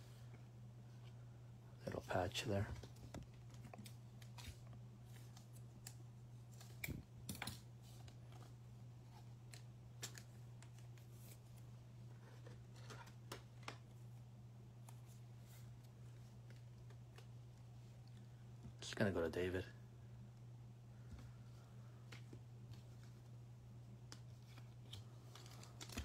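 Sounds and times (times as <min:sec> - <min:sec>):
steady low hum: 0:00.0 - 0:26.0
cards clicking and scraping: 0:12.2 - 0:13.9, 0:24.1 - 0:26.0.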